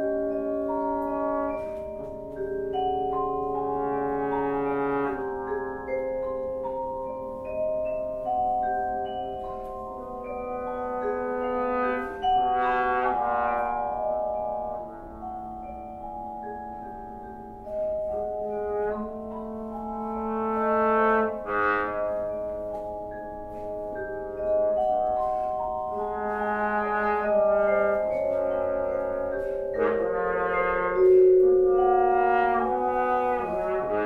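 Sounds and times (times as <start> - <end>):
trombone long notes: 0.0 - 2.1, 3.4 - 5.6, 10.0 - 15.3, 18.4 - 22.7, 24.4 - 34.0
marimba: 0.0 - 34.0.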